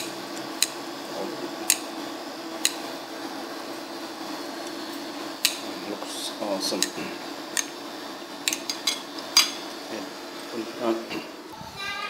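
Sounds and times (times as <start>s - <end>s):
chopsticks clicking on plate: 8.5s - 9.5s.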